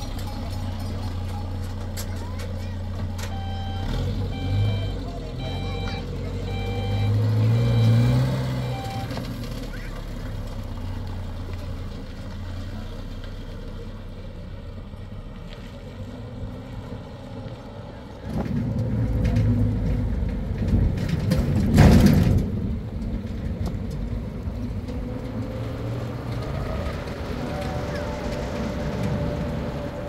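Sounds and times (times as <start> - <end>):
truck engine and road noise: 0.0 - 30.0.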